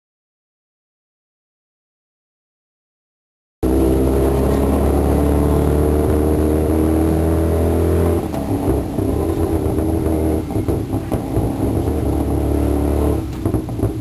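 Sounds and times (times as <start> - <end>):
auto rickshaw engine running: 3.6 - 14.0.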